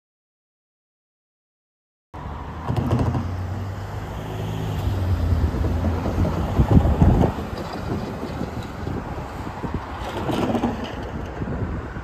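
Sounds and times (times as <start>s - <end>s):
low engine hum: 2.2s - 11.1s
cars driving past: 2.2s - 12.0s.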